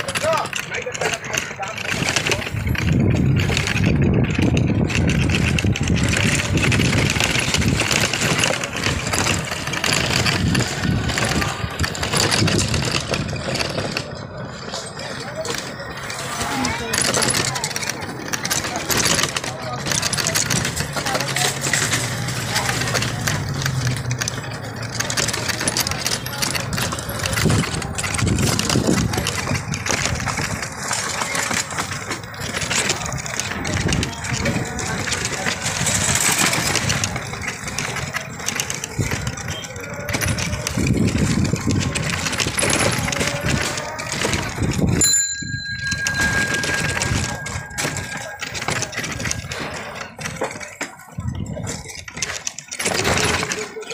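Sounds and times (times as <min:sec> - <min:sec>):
loud rumbles: 0:00.0 - 0:14.1
rickshaw rattling over rough lane: 0:00.0 - 0:53.9.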